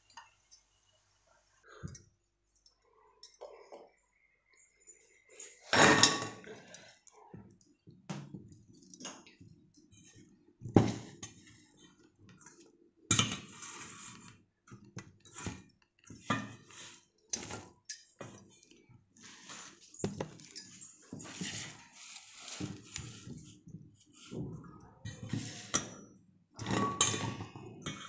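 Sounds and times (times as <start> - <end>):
steel bowls and utensils clinking: 2.7 - 7.0, 10.9 - 14.1, 24.3 - 28.0.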